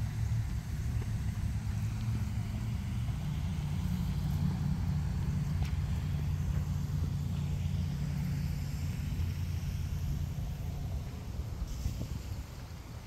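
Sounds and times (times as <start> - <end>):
faint hiss: 0.0 - 13.0
low outdoor rumble: 0.0 - 13.0.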